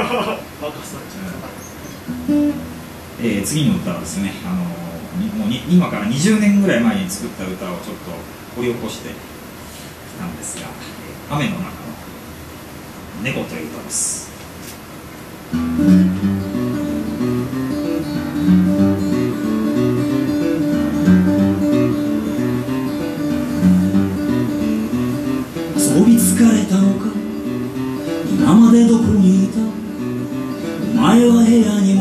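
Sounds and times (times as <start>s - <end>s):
acoustic guitar strumming: 2.0s - 3.1s, 15.5s - 32.0s
man singing: 25.8s - 32.0s.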